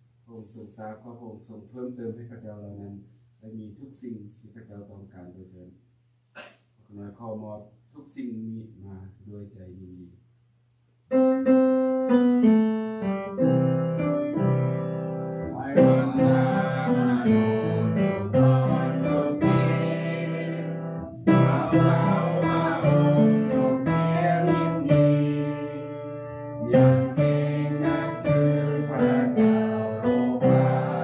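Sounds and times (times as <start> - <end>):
piano playing slow chords: 11.1 - 31.0.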